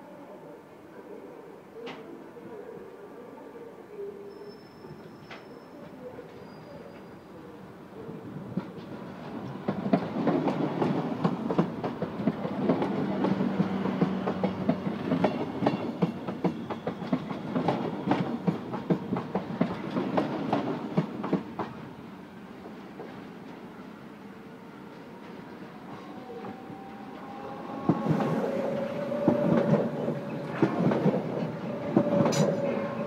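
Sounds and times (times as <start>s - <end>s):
steady train hum: 7.6s - 33.0s
rumble of train running gear: 27.4s - 33.0s.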